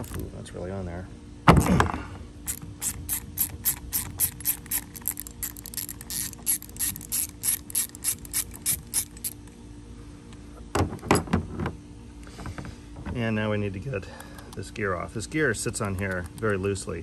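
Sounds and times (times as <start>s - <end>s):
socket ratchet clicking: 2.5s - 9.5s, 15.6s - 16.6s.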